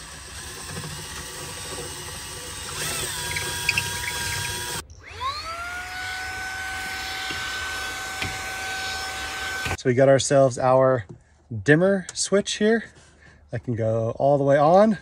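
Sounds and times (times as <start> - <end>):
cordless drill boring: 0.0 - 9.8.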